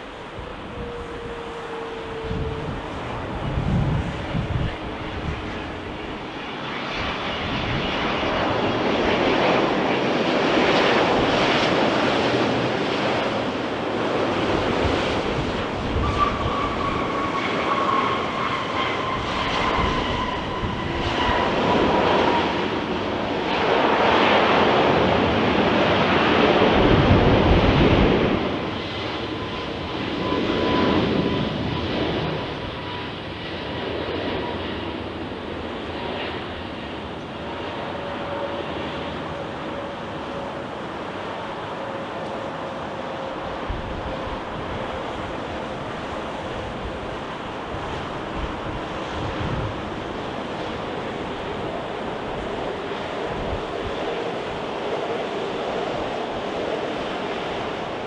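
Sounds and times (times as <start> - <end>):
jet engines rushing: 0.0 - 58.0
thin whine sliding down in pitch: 0.1 - 5.4.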